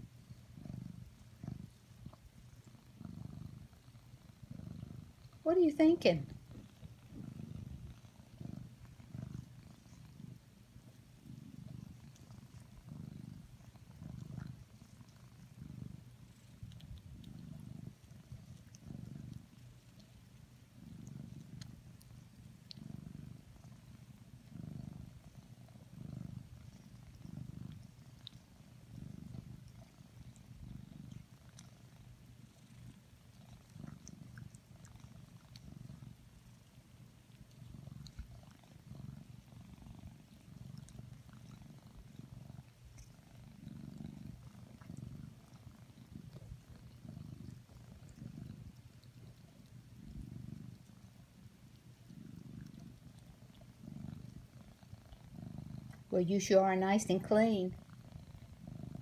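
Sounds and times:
cat purring: 0:00.0 - 0:59.0
cat tongue ticks licking: 0:26.7 - 0:43.7, 0:44.3 - 0:55.3.

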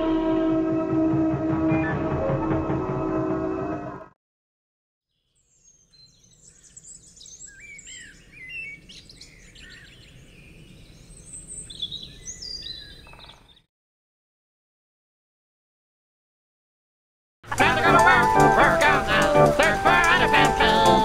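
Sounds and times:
birds chirping and singing: 0:05.5 - 0:13.7
faint outdoor hiss: 0:17.5 - 0:21.0.

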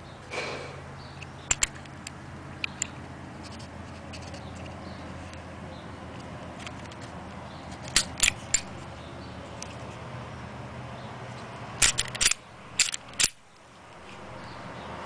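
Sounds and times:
metallic clicks and snaps: 0:01.2 - 0:03.6, 0:07.7 - 0:08.8, 0:11.8 - 0:14.6
pistol parts clicking: 0:01.4 - 0:03.0, 0:07.7 - 0:08.8, 0:11.8 - 0:14.6.

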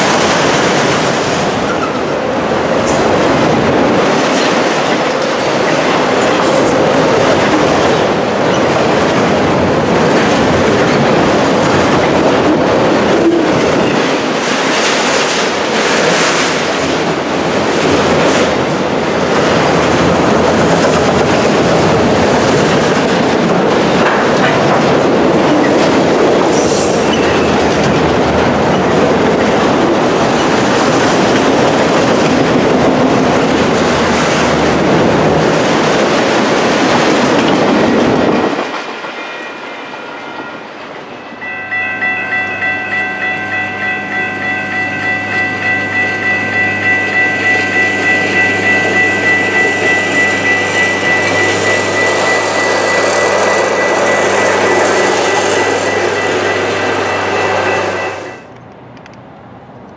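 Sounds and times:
freight train wheels clicking: 0:00.0 - 0:39.5, 0:44.9 - 0:59.9
crossing bell ringing: 0:38.4 - 0:58.6.

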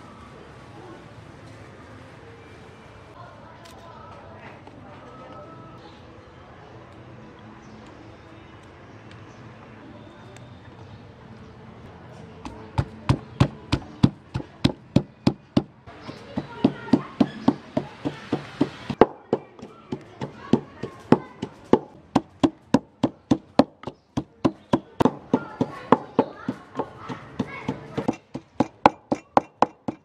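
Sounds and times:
wooden pestle pounding in mortar: 0:12.5 - 0:30.0.

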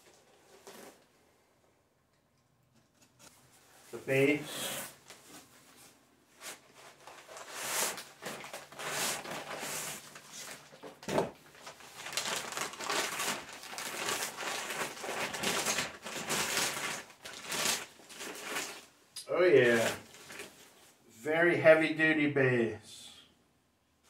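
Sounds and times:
packing paper crinkling: 0:06.8 - 0:18.9, 0:19.6 - 0:20.7.

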